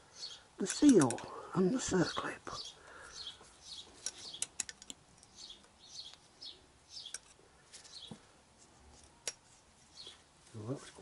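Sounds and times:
small bird chirping: 0:00.0 - 0:08.2, 0:09.8 - 0:10.8
metal tool clicks: 0:00.6 - 0:01.3, 0:04.0 - 0:05.3.

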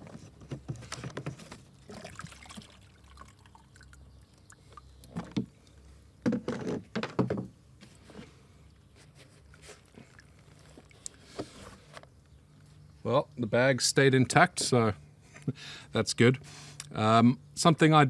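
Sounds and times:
plastic knocks and scrapes: 0:00.0 - 0:01.7, 0:06.2 - 0:08.3.

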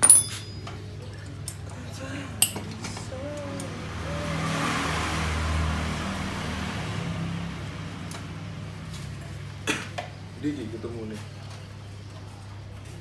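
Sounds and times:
vehicle passing by: 0:01.7 - 0:11.2.

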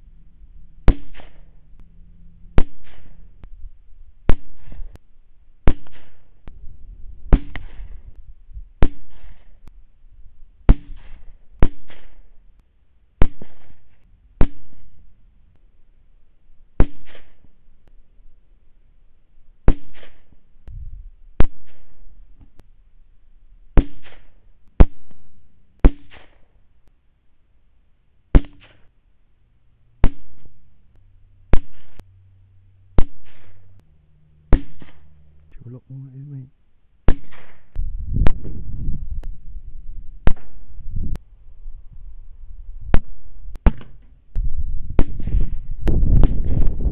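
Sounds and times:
rifle shots: 0:00.8 - 0:01.7, 0:02.5 - 0:03.4, 0:04.2 - 0:05.0, 0:05.6 - 0:06.5, 0:07.3 - 0:08.1, 0:08.8 - 0:09.7, 0:10.7 - 0:12.4, 0:13.2 - 0:15.0, 0:16.8 - 0:17.6, 0:19.6 - 0:20.4, 0:21.4 - 0:22.2, 0:23.8 - 0:26.5, 0:30.0 - 0:30.7, 0:31.5 - 0:32.0, 0:33.0 - 0:33.8, 0:34.5 - 0:35.2, 0:37.0 - 0:38.6, 0:40.2 - 0:40.8, 0:42.9 - 0:44.0, 0:44.9 - 0:46.9.

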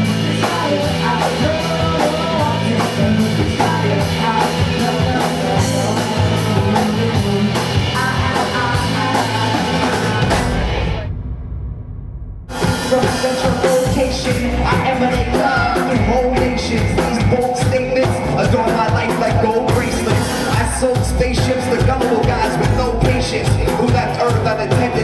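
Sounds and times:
person singing: 0:00.0 - 0:11.1, 0:12.6 - 0:25.0
live band playing: 0:00.0 - 0:11.4, 0:12.5 - 0:25.0
drum beat: 0:00.0 - 0:25.0.

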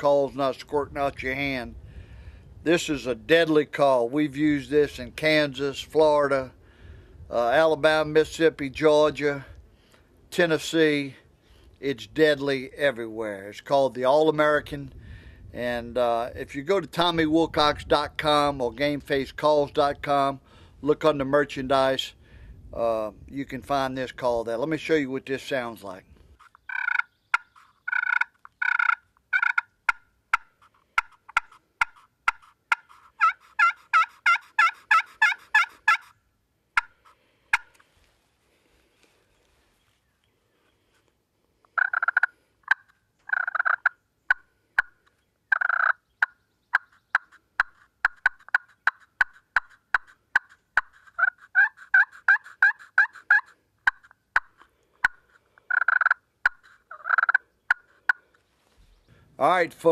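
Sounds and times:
turkey call yelps and cutting: 0:26.4 - 0:36.2, 0:36.8 - 0:37.8, 0:41.7 - 0:58.4.

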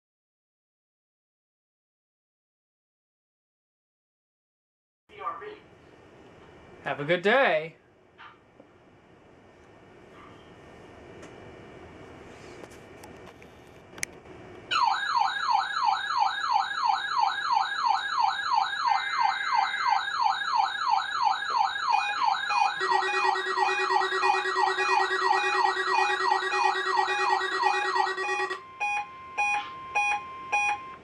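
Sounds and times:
warbling siren alarm tone: 0:14.7 - 0:30.8
steady alarm tone: 0:14.7 - 0:31.0.

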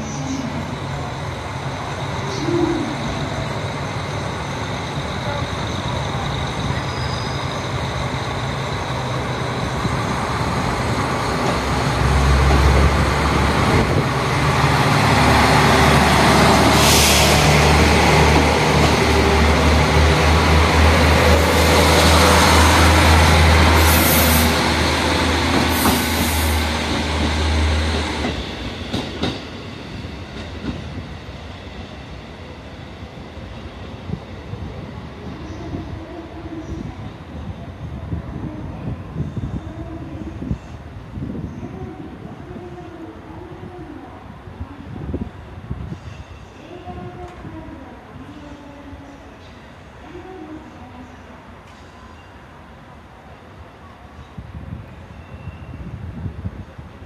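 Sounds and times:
train cars rolling: 0:00.8 - 0:31.1.

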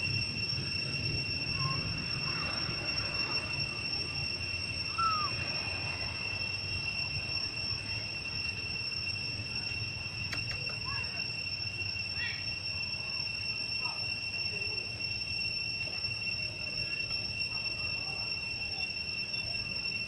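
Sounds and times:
insects droning: 0:00.0 - 0:20.0
short squeaky calls: 0:04.7 - 0:06.0.

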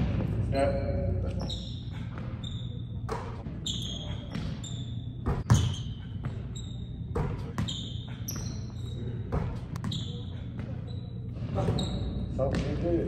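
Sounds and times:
sneakers squeaking: 0:00.1 - 0:13.0
basketball striking rim: 0:05.2 - 0:05.8, 0:07.1 - 0:08.5
basketball bouncing on wooden floor: 0:05.2 - 0:06.4, 0:07.1 - 0:08.5.

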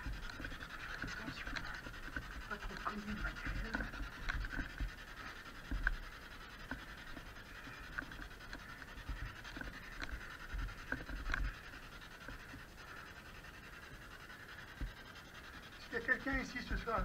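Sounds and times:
camera handling ticks: 0:00.0 - 0:13.0.

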